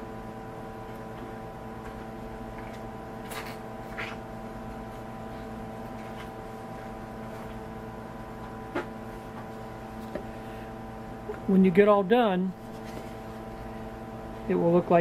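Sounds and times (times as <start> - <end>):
hum of shop equipment: 0.0 - 15.0.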